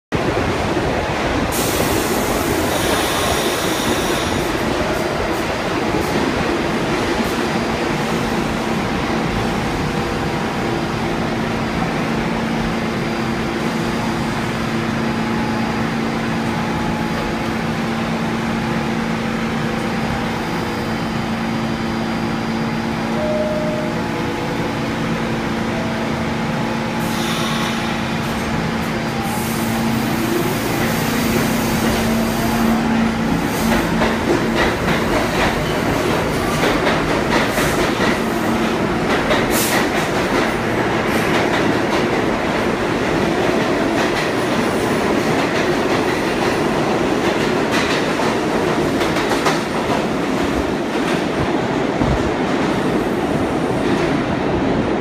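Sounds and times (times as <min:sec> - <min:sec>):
subway train equipment humming: 0:00.2 - 0:55.0
air hiss: 0:27.0 - 0:28.0.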